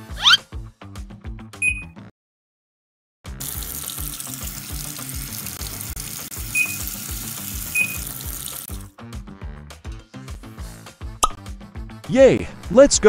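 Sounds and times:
short high beeps: 1.6s - 2.0s, 6.5s - 6.9s, 7.8s - 8.0s
water spraying from hose: 3.4s - 8.9s.

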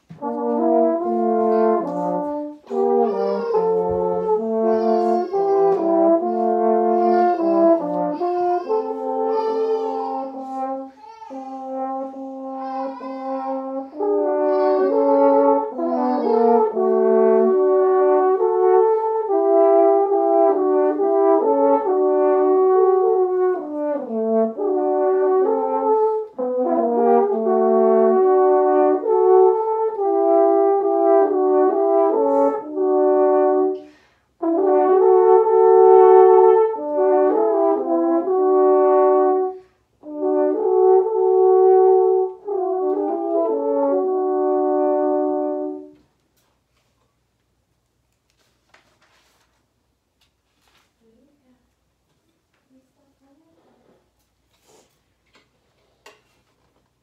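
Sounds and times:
french horns playing a duet: 0.0s - 11.0s, 11.6s - 46.2s.

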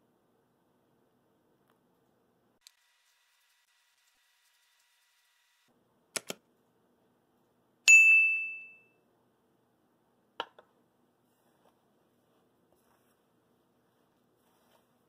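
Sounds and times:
soft clicks: 6.2s - 6.4s
bright ding: 7.9s - 9.0s.

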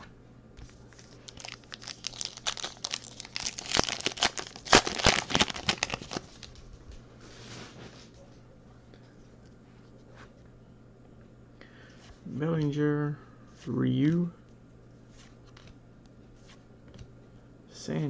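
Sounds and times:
wrapper tearing and crinkling: 0.9s - 6.6s
soft rustle: 7.2s - 8.3s.

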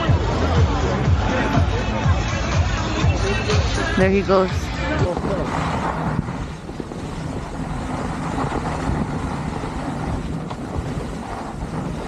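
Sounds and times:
skis scraping over packed snow: 5.0s - 12.0s.

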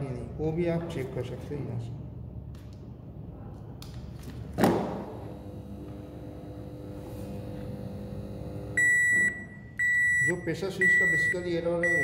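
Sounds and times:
high-pitched electronic beeps: 8.8s - 12.0s.

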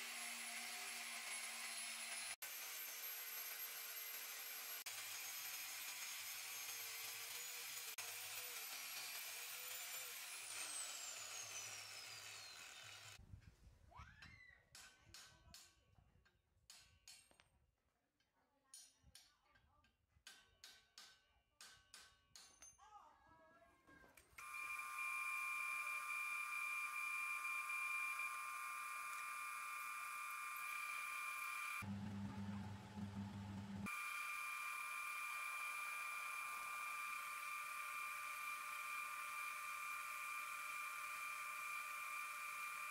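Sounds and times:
angle grinder cutting steel: 0.0s - 13.2s, 24.4s - 42.9s.

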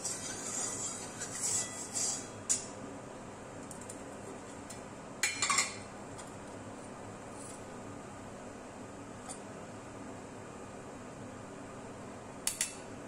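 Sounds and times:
metal spatula scraping wok: 0.0s - 2.5s.

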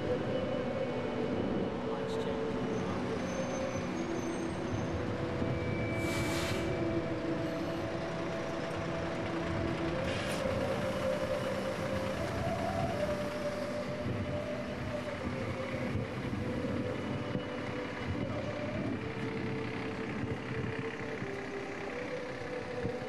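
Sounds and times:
bus engine running: 0.0s - 23.0s
air hiss: 6.0s - 6.8s.

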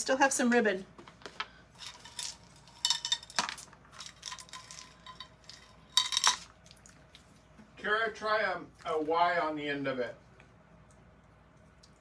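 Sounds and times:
beads clicking and clattering: 1.8s - 6.5s.

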